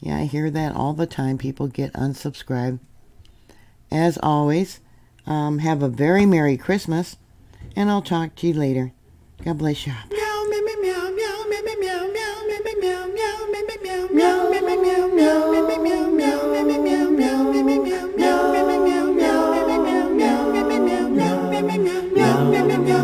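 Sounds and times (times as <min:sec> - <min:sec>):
a cappella voices singing: 0:10.1 - 0:23.0.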